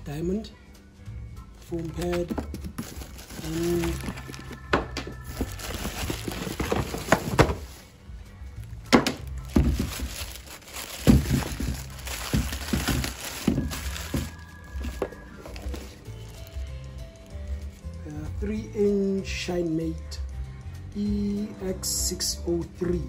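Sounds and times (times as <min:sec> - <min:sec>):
background music: 0:00.0 - 0:23.0
cardboard and plastic bag rustling: 0:01.7 - 0:07.9, 0:08.6 - 0:18.0
knocks and thuds of handling: 0:02.0 - 0:07.8, 0:08.9 - 0:15.9.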